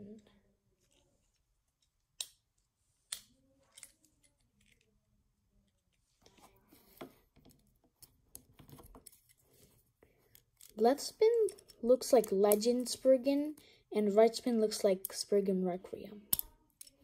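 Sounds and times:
soft clicks and fiddling: 0.0s - 13.6s.

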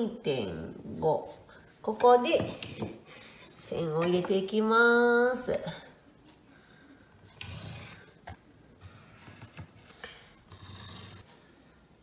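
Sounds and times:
pencil scraping: 8.8s - 11.3s.

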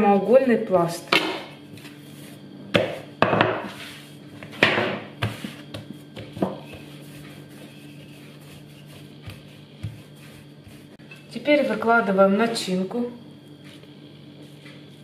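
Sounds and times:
hands rubbing dough: 1.6s - 2.4s, 5.2s - 12.6s
dough thumping on countertop: 2.7s - 3.7s, 4.4s - 7.0s.

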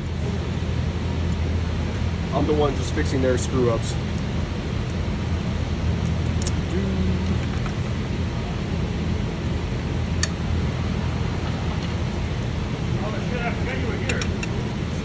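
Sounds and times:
workshop background rumble: 0.0s - 15.0s
sharp clicks of parts fitted: 14.1s - 14.6s.

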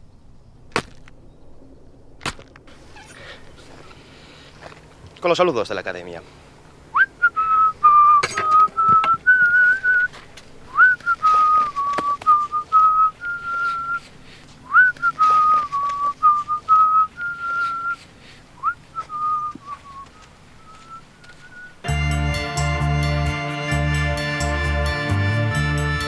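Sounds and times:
person whistling a tune: 7.0s - 10.1s, 10.7s - 14.0s, 14.6s - 18.0s, 18.6s - 21.8s.

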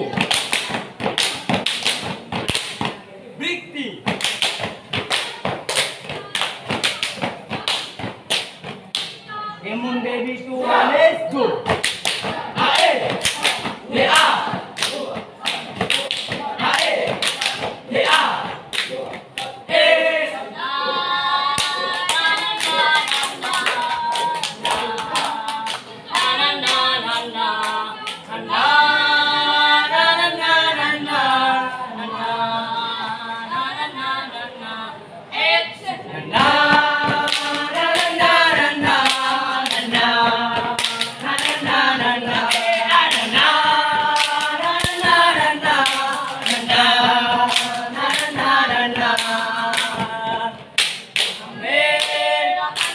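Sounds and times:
group singing chant in unison: 0.0s - 2.9s, 4.1s - 52.9s
stomps and claps of step dance: 0.0s - 3.0s, 4.0s - 9.2s, 11.6s - 19.5s, 36.4s - 51.4s.

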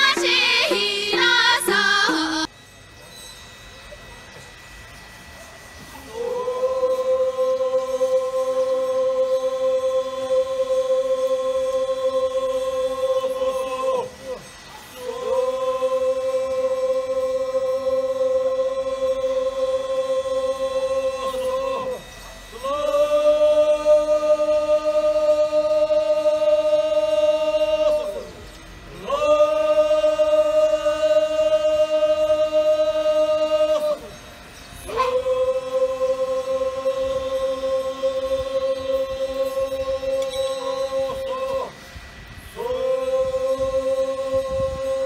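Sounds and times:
voices chanting in unison: 0.0s - 2.5s, 6.0s - 41.8s, 42.5s - 45.0s.

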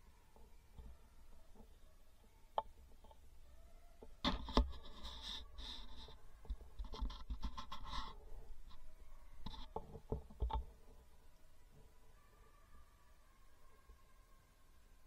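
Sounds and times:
scraping and rustling: 4.0s - 11.0s.

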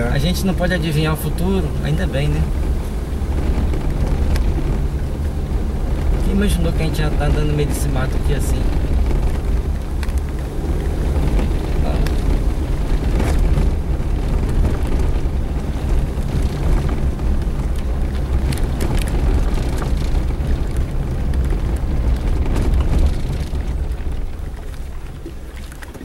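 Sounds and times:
low engine and road rumble: 0.0s - 26.0s
vehicle knocking over bumps: 2.1s - 26.0s.

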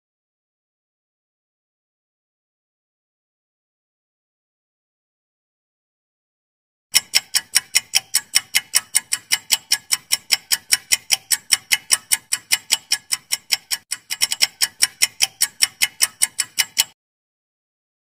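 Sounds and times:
clock ticking: 6.9s - 17.0s.

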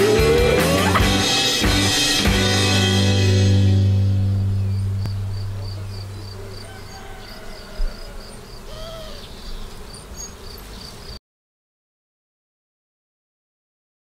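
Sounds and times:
background music: 0.0s - 6.5s
high insect chirp: 4.0s - 11.2s.

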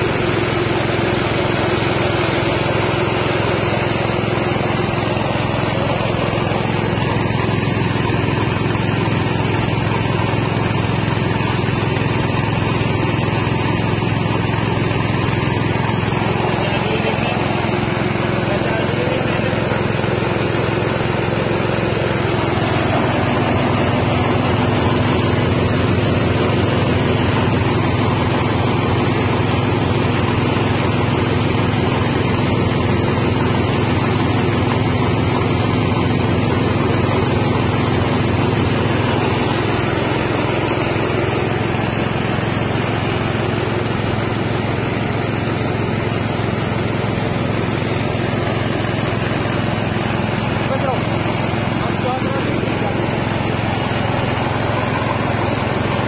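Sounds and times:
rice milling machine running: 0.0s - 56.0s.

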